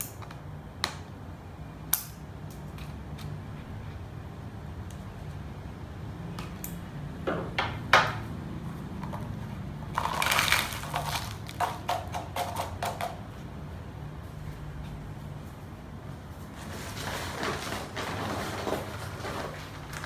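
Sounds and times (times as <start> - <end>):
soil pouring into plastic tub: 10.0 - 11.6.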